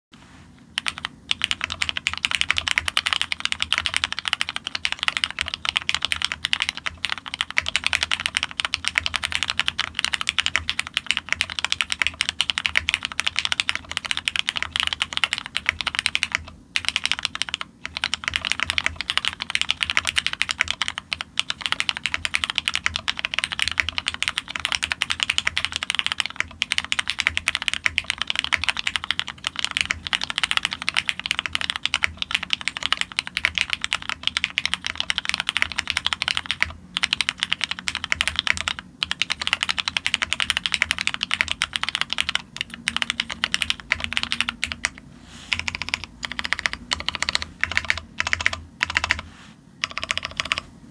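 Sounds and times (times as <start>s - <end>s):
mechanical keyboard typing: 0.8s - 50.7s.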